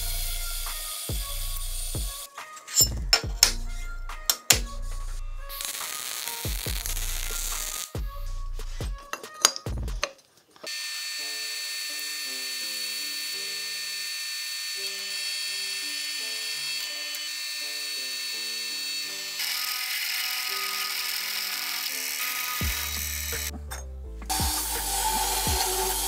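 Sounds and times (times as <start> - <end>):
background music: 0.0 - 13.9, 14.7 - 26.0
drill press boring through metal: 10.7 - 23.5, 24.3 - 26.0.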